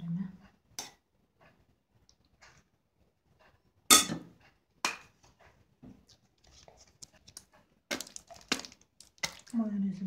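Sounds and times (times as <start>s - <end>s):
kitchenware knocking: 3.9s - 5.1s.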